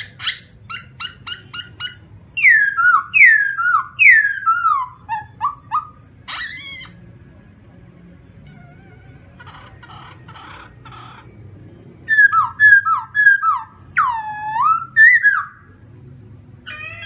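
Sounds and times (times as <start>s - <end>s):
bird singing whistles: 0.2s - 6.6s, 12.1s - 15.6s.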